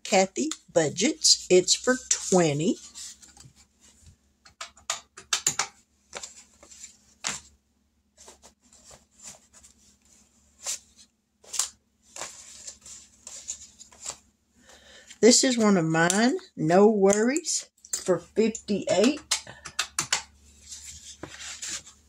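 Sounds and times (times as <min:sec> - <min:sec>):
paper rustling: 0:08.2 - 0:14.3, 0:20.6 - 0:22.0.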